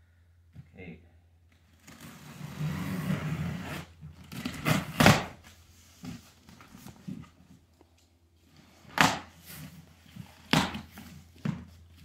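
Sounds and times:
cardboard flaps scraping and knocking: 0:08.6 - 0:12.0.

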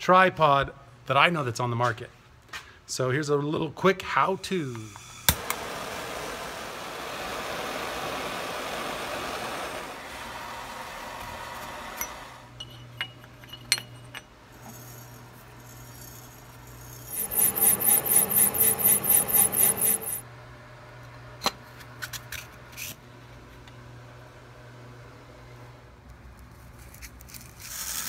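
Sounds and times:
file scraping spinning metal: 0:12.0 - 0:20.2
metal parts clicking and knocking: 0:12.6 - 0:14.9, 0:17.1 - 0:20.2
steady low hum: 0:12.6 - 0:20.2.

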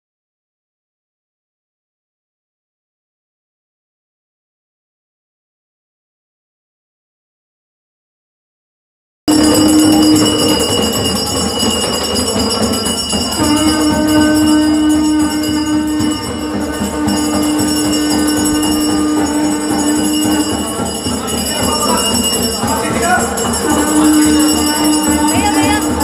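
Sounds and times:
jingling percussion: 0:09.3 - 0:26.0
long held notes: 0:09.3 - 0:26.0.

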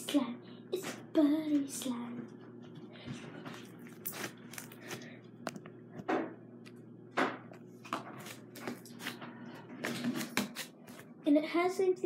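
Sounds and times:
slime squelching by hand: 0:03.4 - 0:05.2.

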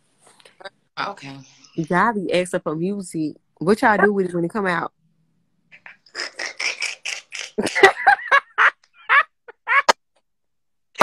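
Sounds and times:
woman laughing hard: 0:07.6 - 0:10.0.

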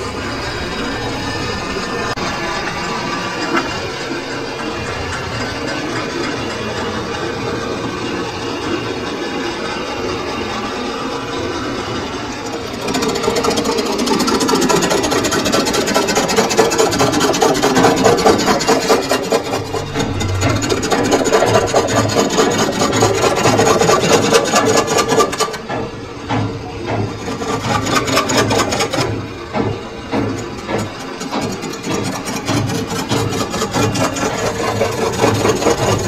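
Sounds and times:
lathe tool scraping metal: 0:11.9 - 0:25.6, 0:27.2 - 0:29.3, 0:30.3 - 0:36.0.

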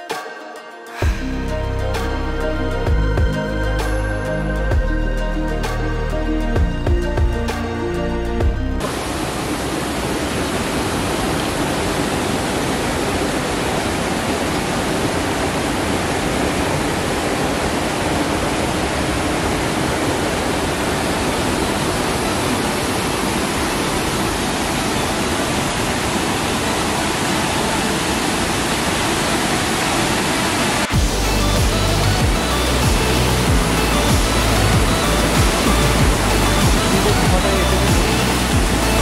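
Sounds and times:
river rushing over boulders: 0:08.8 - 0:39.0.

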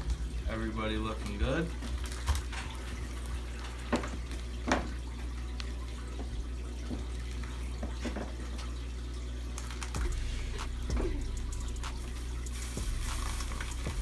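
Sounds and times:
steady low hum: 0:00.0 - 0:14.0
water sloshing in plastic bags: 0:00.0 - 0:14.0
plastic bag crinkling: 0:01.1 - 0:04.5, 0:09.5 - 0:10.4, 0:12.4 - 0:14.0.

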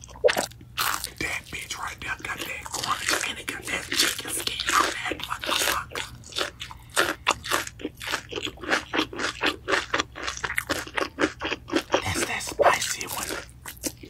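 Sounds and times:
crunchy chewing of fried chicken: 0:00.0 - 0:14.0.

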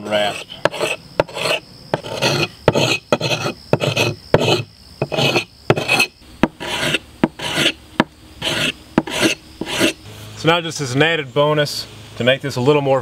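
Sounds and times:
file rasping on wooden handle: 0:00.0 - 0:07.8, 0:08.4 - 0:10.0.

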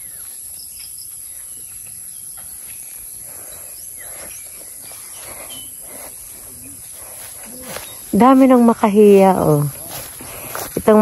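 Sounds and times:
insects chorus: 0:00.0 - 0:11.0
vegetation rustling: 0:02.7 - 0:11.0.

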